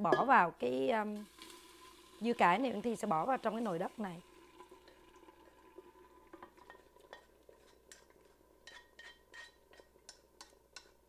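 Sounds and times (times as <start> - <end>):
chopsticks scraping a wok: 8.6 - 10.2.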